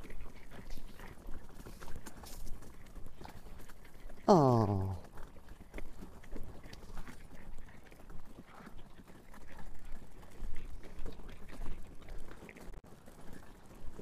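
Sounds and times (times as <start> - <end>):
wheels rolling over gravel: 5.2 - 14.0.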